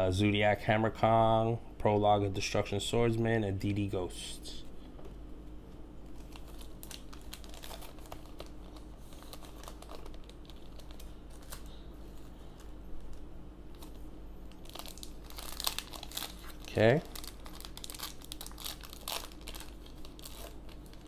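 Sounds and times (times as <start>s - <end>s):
foil wrapper crinkling: 6.0s - 21.0s.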